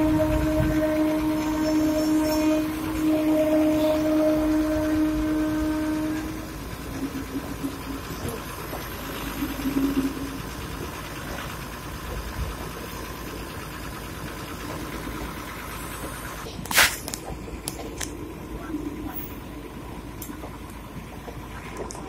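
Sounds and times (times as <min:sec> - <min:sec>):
machine engine idling: 0:00.0 - 0:22.0.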